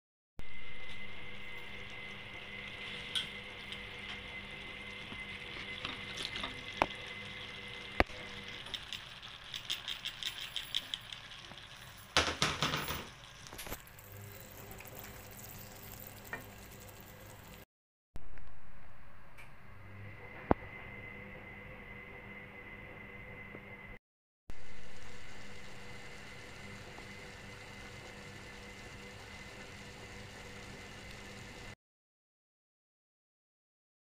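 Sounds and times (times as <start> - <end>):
vegetables sizzling in a wok: 0.4 - 9.5, 11.1 - 17.6, 24.5 - 31.8.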